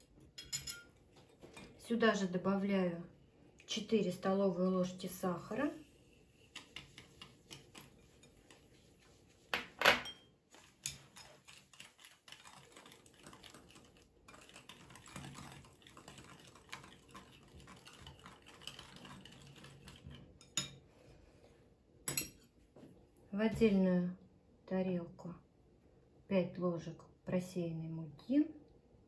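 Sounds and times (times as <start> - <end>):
whisk beating in a ceramic bowl: 5.3 - 20.8.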